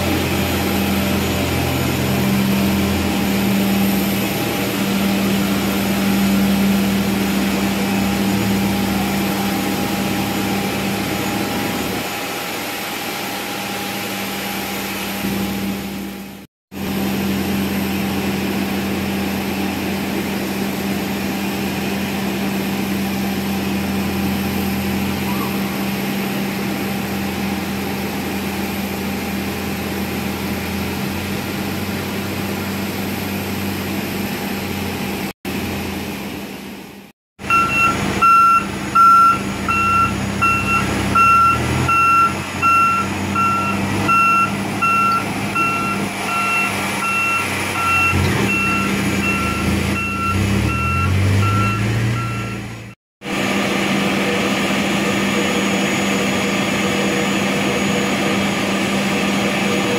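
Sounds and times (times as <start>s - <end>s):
tow tractor engine: 0.0s - 36.8s, 37.4s - 59.9s
jet engine noise: 0.0s - 50.0s, 53.2s - 59.9s
reversing alarm beeping: 37.4s - 53.0s.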